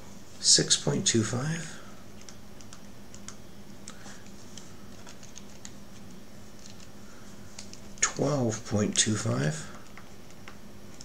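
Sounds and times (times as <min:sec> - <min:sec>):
faint steady hum: 0:00.0 - 0:11.0
calculator keys clicking: 0:02.2 - 0:05.8.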